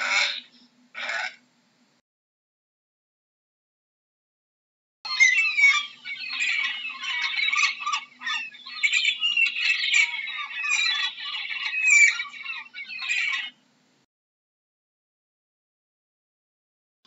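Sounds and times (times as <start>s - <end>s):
gulls calling: 5.1s - 13.6s.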